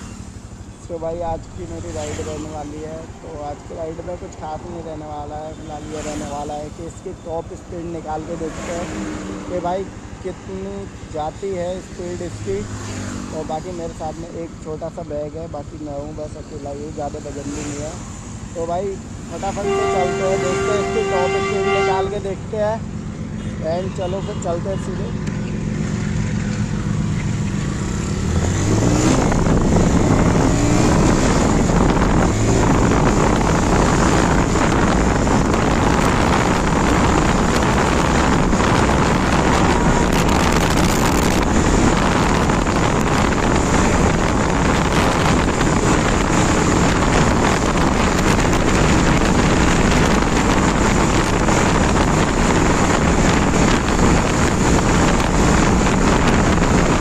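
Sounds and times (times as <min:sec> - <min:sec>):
motorcycle engine accelerating: 0:25.2 - 0:57.0
wind rushing over microphone: 0:25.8 - 0:57.0.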